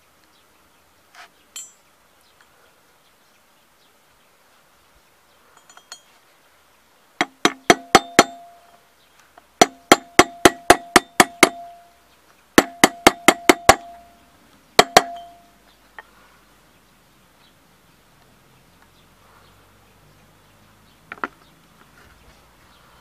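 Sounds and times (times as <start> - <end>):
hammer striking metal drift: 7.5 - 8.6, 9.6 - 11.8, 12.6 - 14.1, 14.8 - 15.5.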